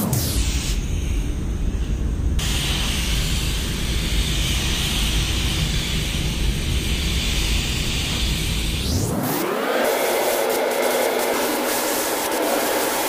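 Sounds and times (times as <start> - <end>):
low rumble: 0.0 - 8.9
spray gun hissing: 2.4 - 13.0.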